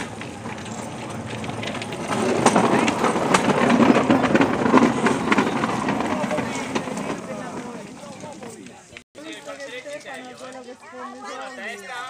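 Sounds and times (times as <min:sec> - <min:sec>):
train wheels clattering over rails: 0:00.0 - 0:08.6.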